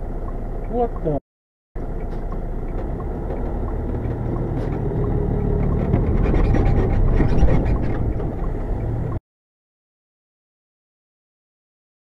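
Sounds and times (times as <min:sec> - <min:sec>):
diesel truck engine rumbling: 0:00.0 - 0:01.2, 0:01.8 - 0:09.2.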